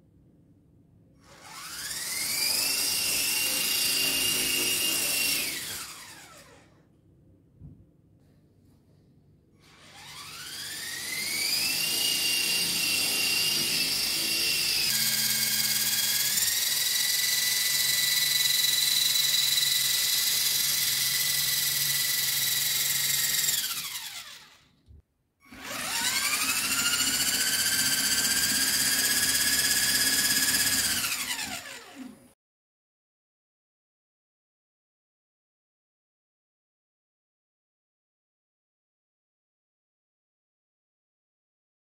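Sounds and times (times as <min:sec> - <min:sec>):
small electric motors whining: 0:01.2 - 0:06.8, 0:09.6 - 0:24.7, 0:25.5 - 0:32.2.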